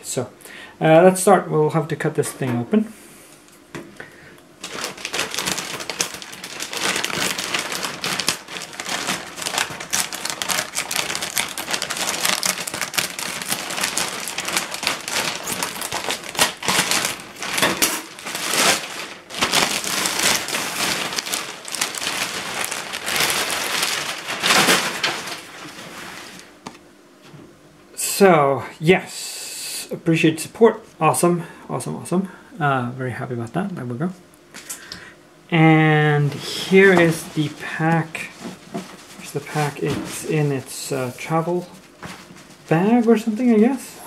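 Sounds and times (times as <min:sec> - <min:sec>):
plastic bag crinkling: 0:04.5 - 0:26.6, 0:36.4 - 0:44.0.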